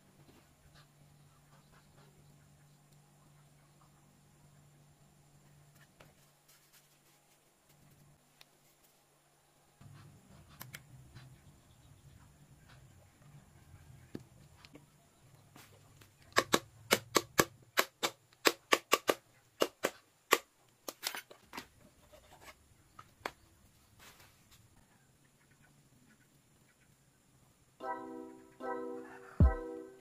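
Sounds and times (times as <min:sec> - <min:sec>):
sharp tool clicks: 0:16.3 - 0:21.2.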